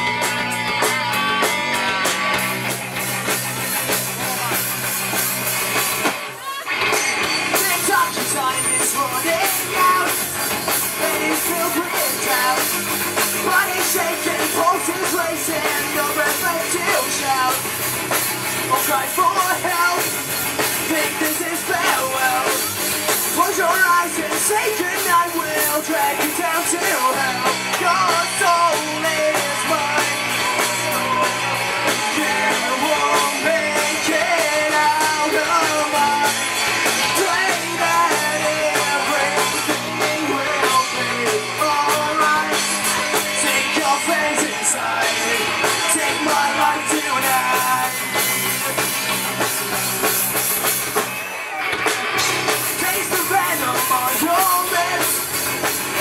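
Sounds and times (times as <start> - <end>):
bass guitar: 0.0 - 56.0
drum kit: 0.0 - 56.0
electric guitars: 0.0 - 56.0
man singing: 3.2 - 4.7, 7.4 - 17.7, 18.6 - 50.1, 52.6 - 56.0.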